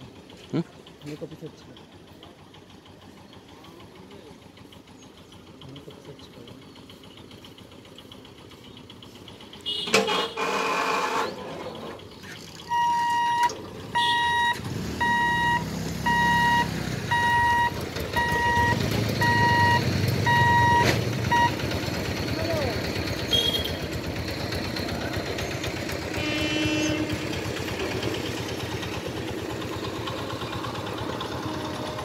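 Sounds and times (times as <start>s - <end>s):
motorcycle engines rumbling: 0.0s - 32.0s
level-crossing warning beeper: 12.6s - 21.7s.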